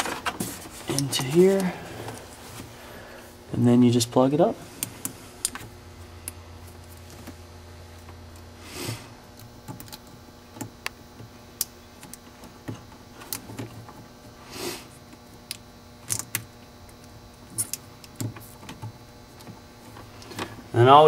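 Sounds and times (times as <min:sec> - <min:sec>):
cables brushing: 0:00.0 - 0:02.8.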